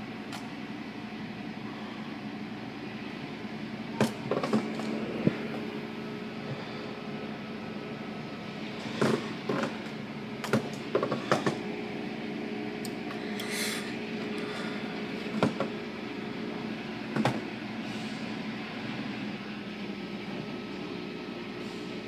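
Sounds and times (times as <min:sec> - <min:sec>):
car wash machinery hum: 0:00.0 - 0:22.0.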